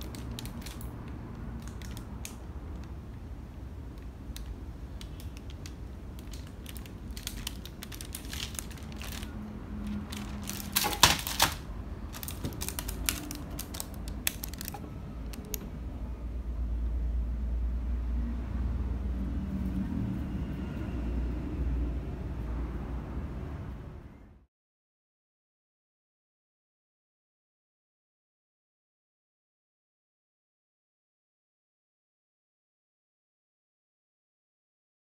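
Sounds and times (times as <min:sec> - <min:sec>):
plastic packaging crackling: 0:00.0 - 0:02.9, 0:04.0 - 0:15.7.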